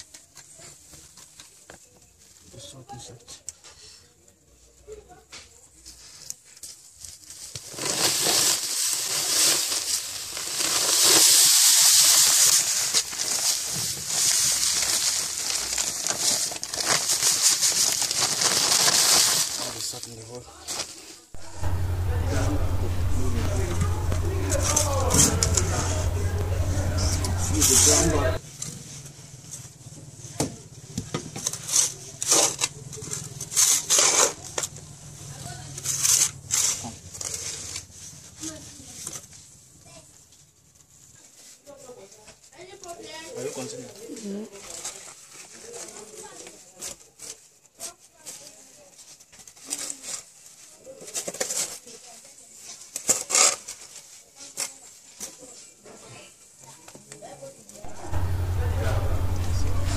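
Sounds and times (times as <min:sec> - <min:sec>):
salt pouring onto soil: 0:07.9 - 0:12.9.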